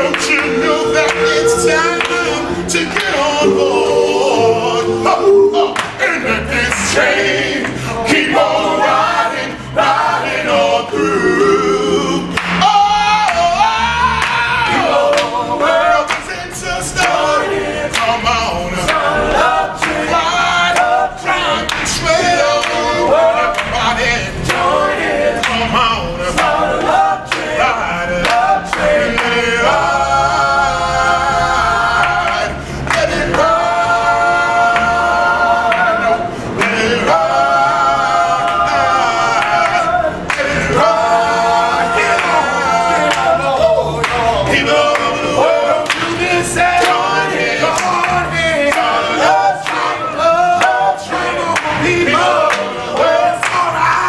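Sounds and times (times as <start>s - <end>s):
male group singing a cappella: 0.0s - 54.0s
hand claps: 2.0s - 2.2s, 5.8s - 6.0s, 12.4s - 12.6s, 15.1s - 16.4s, 17.9s - 18.2s, 18.9s - 20.0s, 21.7s - 22.0s, 23.5s - 23.8s, 25.4s - 25.6s, 26.4s - 27.6s, 28.2s - 29.4s, 44.0s - 45.1s, 45.8s - 46.2s, 46.8s - 49.9s, 50.6s - 54.0s.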